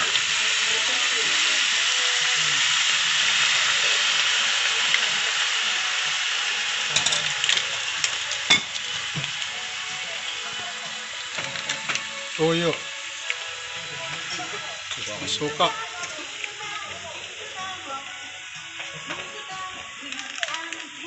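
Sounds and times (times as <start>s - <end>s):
chicken frying in a wok: 0.0s - 21.0s.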